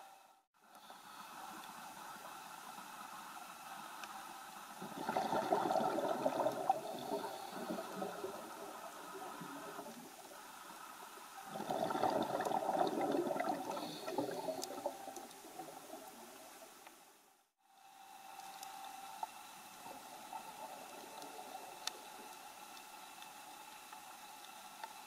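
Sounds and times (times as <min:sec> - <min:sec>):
faint steady hiss: 0:00.0 - 0:25.0
underwater bubbles gurgling: 0:04.8 - 0:10.2, 0:11.4 - 0:16.8.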